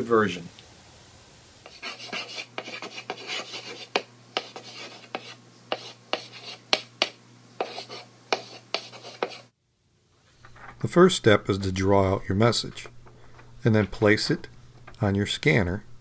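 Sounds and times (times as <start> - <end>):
chalk scratching on chalkboard: 1.6 - 9.5
chalk tapping: 1.6 - 9.5.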